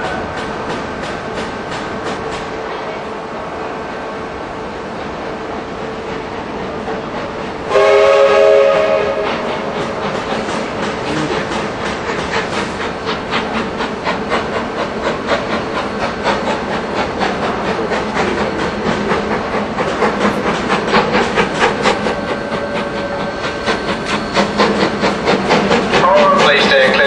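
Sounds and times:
steam hissing: 0:06.6 - 0:27.0
train wheels clicking over points: 0:06.6 - 0:27.0.

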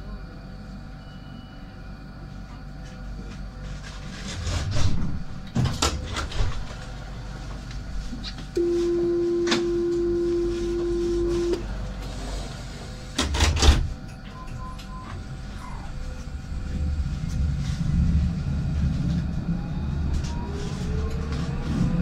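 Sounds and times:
tram door warning beep: 0:08.6 - 0:11.7, 0:14.2 - 0:15.3.

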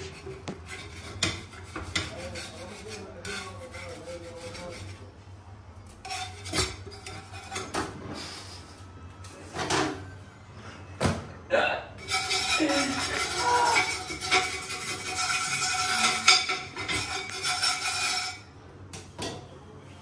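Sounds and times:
metal knife scraping a pan: 0:00.0 - 0:05.1, 0:05.8 - 0:08.8, 0:12.0 - 0:18.5.

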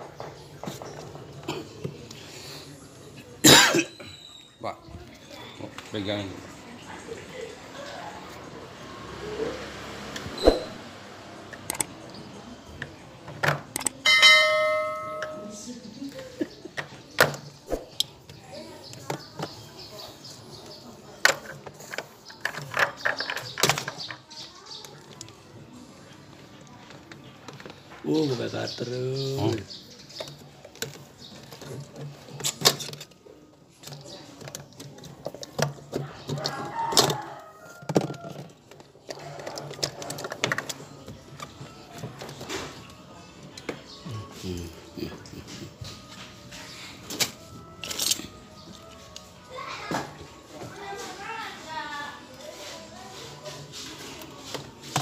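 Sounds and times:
bell ding: 0:14.0 - 0:15.6
handling knocks and clicks: 0:21.2 - 0:24.4, 0:30.1 - 0:44.0.

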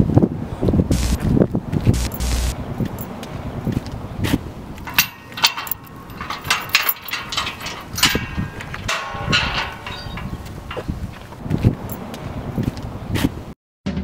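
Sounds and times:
metal lock clinking and rattling: 0:04.8 - 0:11.0
steel gate pushed open: 0:04.9 - 0:10.9.

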